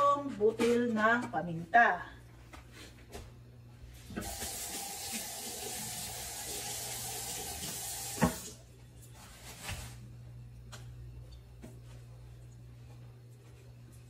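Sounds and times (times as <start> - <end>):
tap running: 4.1 - 8.6.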